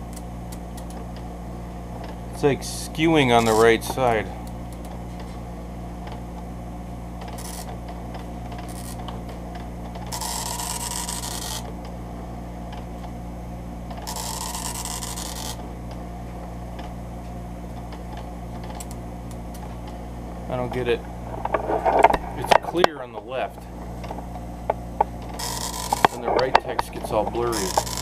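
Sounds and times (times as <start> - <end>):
steady low hum: 0.0 - 28.0
dot matrix printer buzzing: 7.2 - 9.2, 9.8 - 11.9, 13.9 - 15.7, 25.2 - 28.0.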